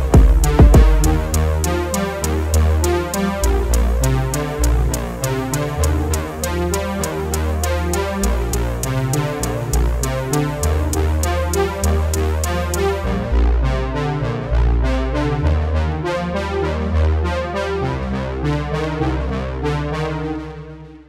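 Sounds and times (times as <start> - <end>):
heavy kick drum hits: 0.0 - 1.4
ticking hi-hats: 0.0 - 13.0
synthesizer bass line: 0.0 - 20.8.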